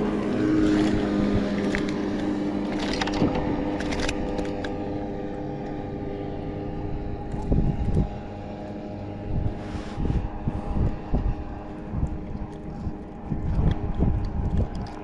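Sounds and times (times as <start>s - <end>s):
engine drone: 0.0s - 15.0s.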